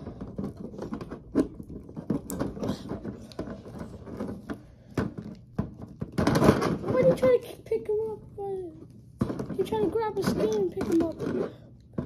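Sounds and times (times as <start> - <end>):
sharp plastic knocks: 0.0 - 7.4, 9.2 - 12.0
plastic figures clicking and tapping: 8.6 - 12.0.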